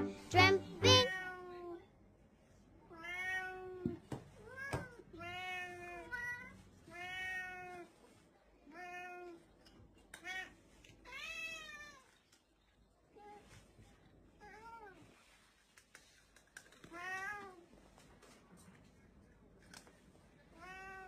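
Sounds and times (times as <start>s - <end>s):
cat meowing: 0.8s - 1.8s, 3.0s - 7.9s, 20.5s - 21.0s.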